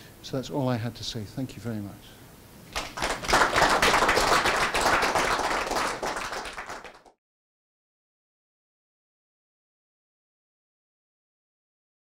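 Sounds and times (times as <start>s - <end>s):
audience applauding: 2.7s - 7.2s.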